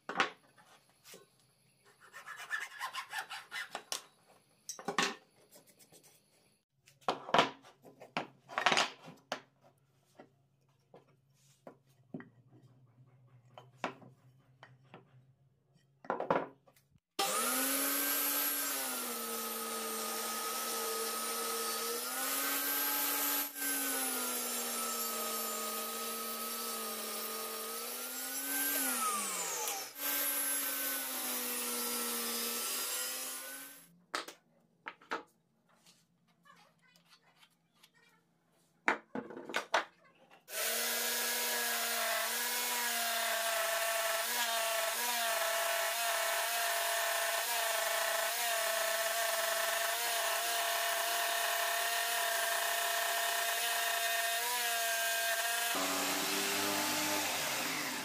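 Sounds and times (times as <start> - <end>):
table saw cutting wood: 17.2 - 33.9, 40.5 - 58.0.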